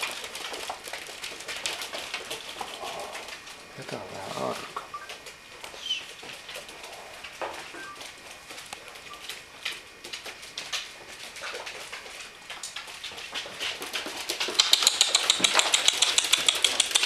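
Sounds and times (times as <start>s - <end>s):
puppy claws clicking on wooden floor: 0.0s - 17.0s.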